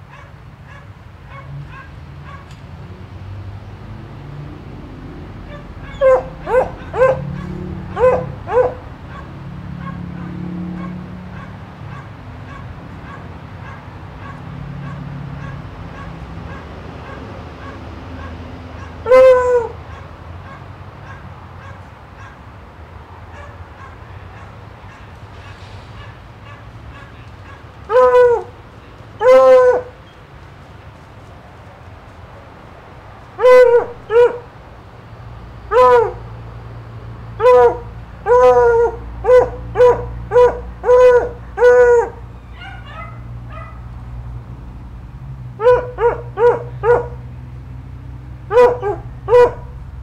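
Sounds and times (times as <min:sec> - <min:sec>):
dog barking: 0:00.1 - 0:02.5, 0:05.4 - 0:22.5, 0:23.3 - 0:28.6, 0:29.2 - 0:30.0, 0:33.4 - 0:34.5, 0:35.7 - 0:36.2, 0:37.4 - 0:43.9, 0:45.6 - 0:47.3, 0:48.5 - 0:49.8.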